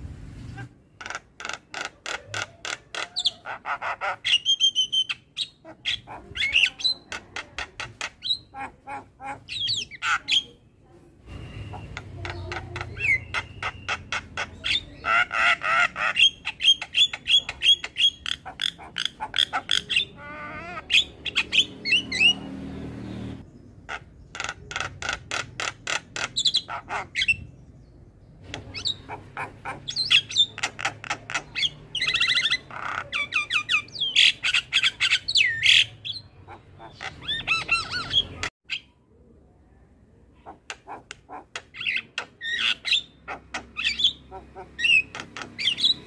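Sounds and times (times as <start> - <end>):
myna calling: 0.6 - 10.7, 11.3 - 22.6, 23.8 - 27.5, 28.4 - 38.5, 40.4 - 46.0.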